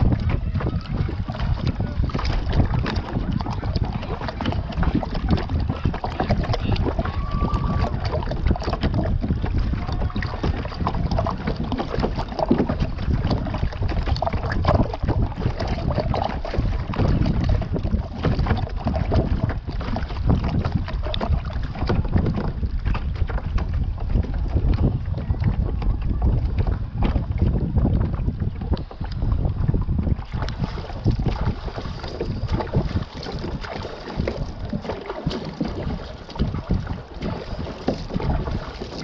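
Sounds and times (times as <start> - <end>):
paddle splashing water: 0.0 - 39.0
water slapping plastic hull: 0.0 - 39.0
wind rumbling on microphone: 0.0 - 39.0.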